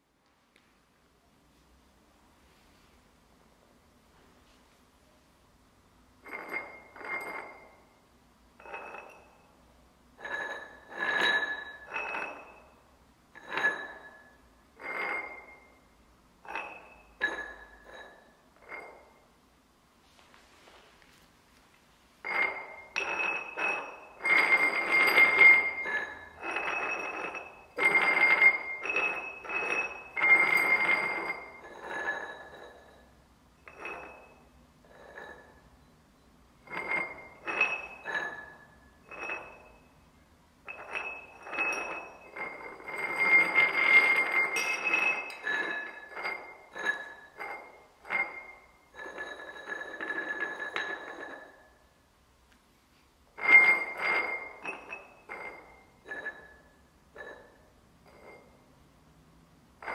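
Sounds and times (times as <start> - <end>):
glasses scraping on hard surface: 6.2 - 7.9, 10.2 - 12.8, 13.4 - 15.9, 16.5 - 19.2, 20.2 - 36.0, 36.6 - 39.8, 40.7 - 51.6, 53.4 - 58.7
glasses ringing tones: 6.3 - 7.9, 10.2 - 19.2, 22.2 - 51.9, 53.4 - 58.7.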